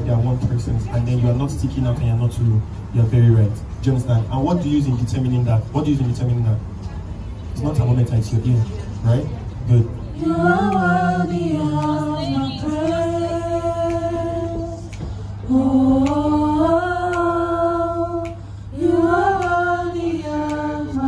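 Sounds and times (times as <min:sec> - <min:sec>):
choir singing unaccompanied: 0:09.8 - 0:21.0
singers breathing: 0:14.9 - 0:15.5, 0:18.4 - 0:18.8.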